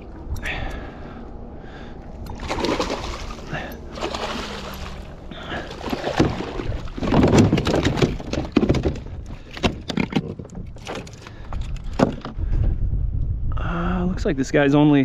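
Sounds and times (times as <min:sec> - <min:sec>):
fish splashing at surface: 0:02.3 - 0:07.0
fish knocking against kayak: 0:03.9 - 0:10.4.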